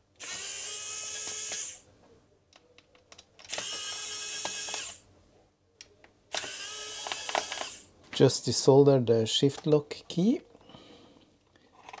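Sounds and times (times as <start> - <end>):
electric screwdriver whining: 0.2 - 1.8, 3.5 - 5.0, 6.3 - 7.9.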